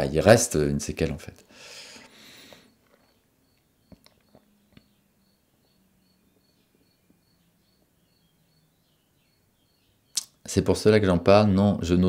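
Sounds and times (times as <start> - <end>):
faint high chirping: 1.9 - 10.5.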